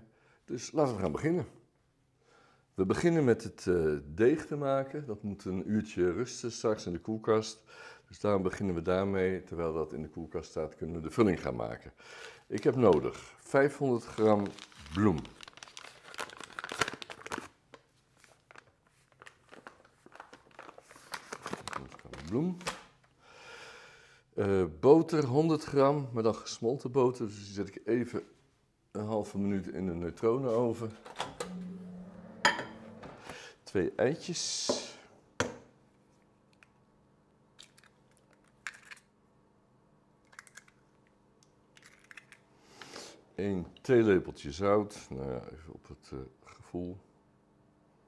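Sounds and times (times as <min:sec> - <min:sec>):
paper bag rustling: 0:14.0 - 0:17.5, 0:18.2 - 0:22.7
small crackles: 0:14.0 - 0:22.9
eggshells cracking: 0:37.6 - 0:39.1, 0:40.3 - 0:40.8, 0:41.7 - 0:42.4.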